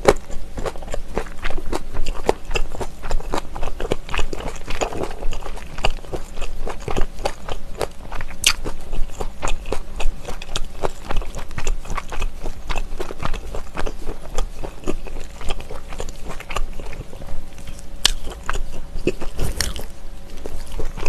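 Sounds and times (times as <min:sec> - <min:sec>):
close-miked chewing: 0:00.0 - 0:21.0.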